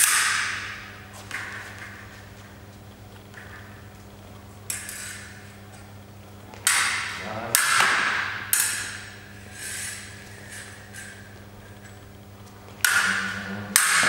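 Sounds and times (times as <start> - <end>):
sabre blades clashing: 0.0 - 1.9, 6.5 - 9.2, 12.8 - 14.0.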